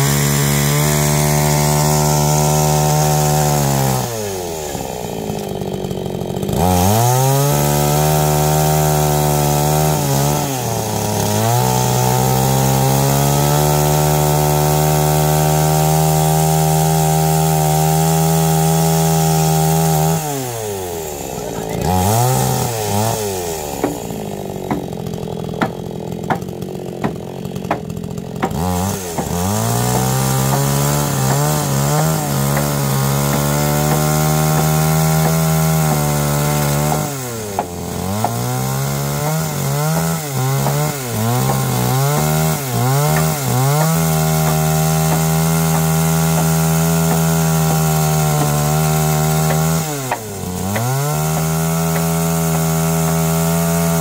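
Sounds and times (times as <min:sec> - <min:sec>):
chainsaw cutting timber: 0:00.0 - 0:54.0
sharp knocks: 0:23.8 - 0:24.1, 0:24.7 - 0:25.0, 0:43.1 - 0:47.3.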